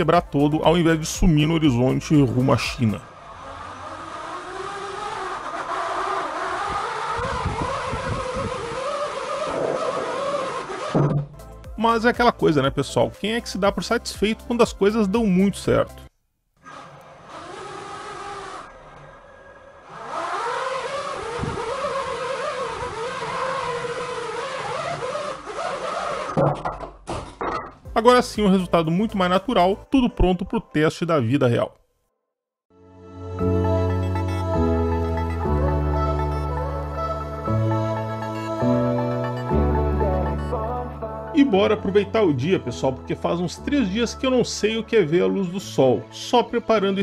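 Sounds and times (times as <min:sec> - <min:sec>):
drone motors whining: 0:03.0 - 0:11.2, 0:16.6 - 0:26.4.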